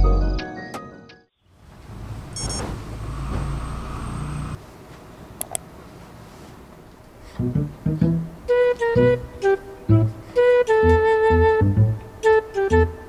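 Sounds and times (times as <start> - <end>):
fabric rustling: 5.8 - 7.1
plucked guitar music: 7.5 - 13.0.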